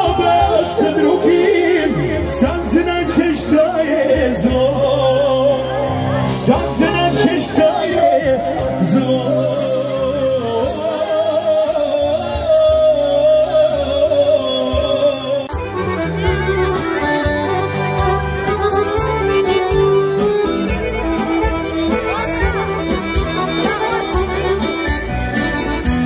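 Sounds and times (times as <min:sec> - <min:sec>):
accordion melody: 0:00.0 - 0:26.0
bass line: 0:00.0 - 0:26.0.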